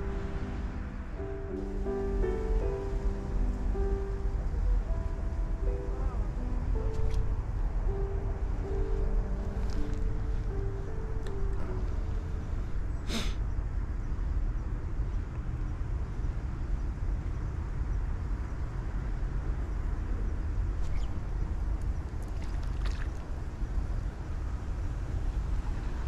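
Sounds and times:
background music: 0.0s - 13.2s
low outdoor rumble: 0.0s - 26.0s.

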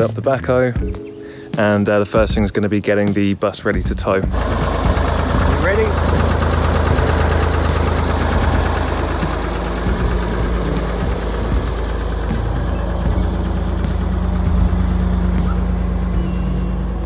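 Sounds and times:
backhoe engine idling: 4.3s - 17.0s.

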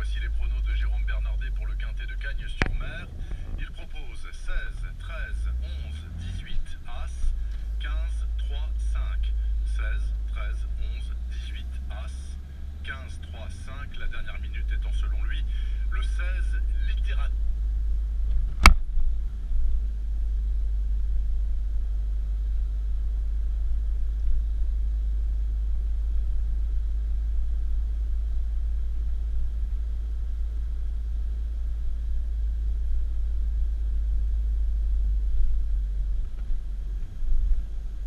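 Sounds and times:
car road rumble: 0.0s - 38.0s.

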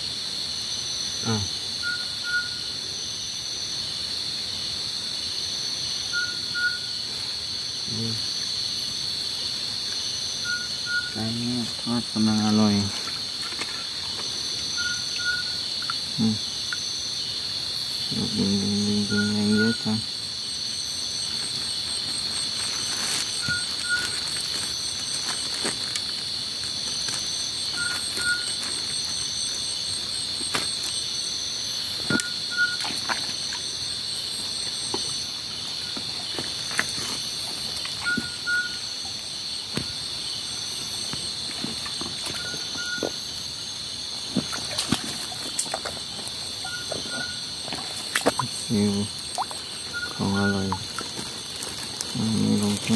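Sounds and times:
insect double chirp: 0.0s - 52.9s
insect pulsing trill: 0.0s - 52.9s
insect shrill drone: 0.0s - 52.9s
footsteps in wet leaf litter: 21.3s - 29.5s, 35.9s - 38.0s, 44.3s - 52.9s.

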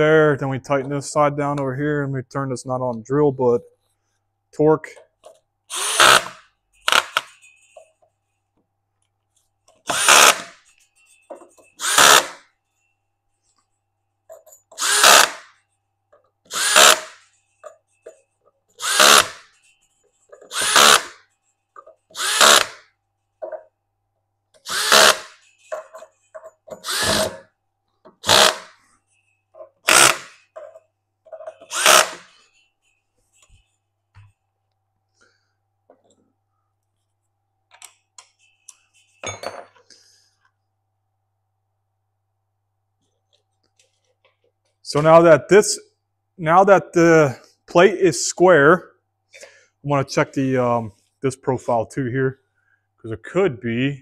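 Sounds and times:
power drill driving bolts: 5.7s - 7.4s, 9.8s - 10.6s, 11.8s - 12.4s, 14.7s - 15.5s, 16.5s - 17.2s, 18.8s - 19.5s, 20.4s - 21.2s, 22.1s - 22.8s, 24.6s - 25.4s, 26.7s - 27.5s, 28.2s - 28.8s, 29.8s - 30.5s, 31.5s - 32.3s.

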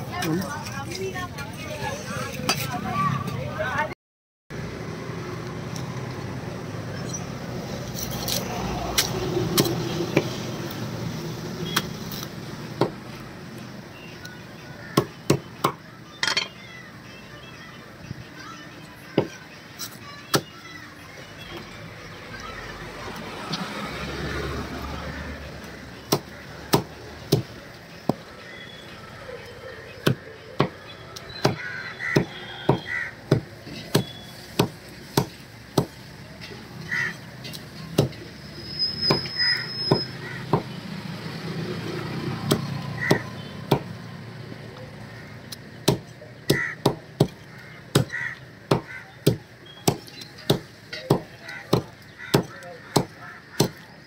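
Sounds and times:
cleaver chopping on wooden block: 42.4s - 43.9s, 45.8s - 53.8s.

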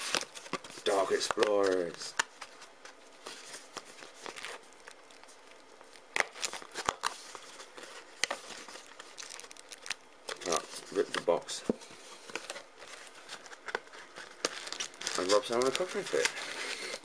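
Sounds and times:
cardboard rustling and scraping: 0.0s - 4.7s, 10.4s - 17.0s.

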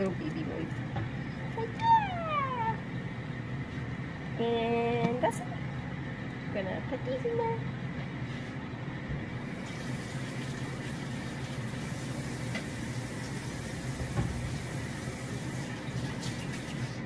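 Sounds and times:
water pouring into a pot: 9.5s - 17.0s.

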